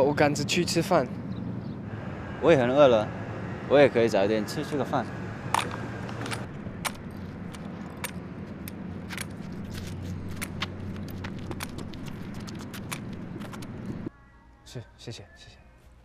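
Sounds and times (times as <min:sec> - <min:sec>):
low outdoor background hum: 0:00.0 - 0:16.0
sharp clicks and ticks: 0:05.5 - 0:14.1.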